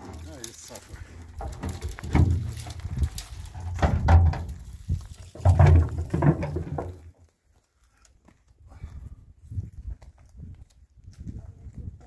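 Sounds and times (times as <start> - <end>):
dry branches rustling: 0.0 - 8.1.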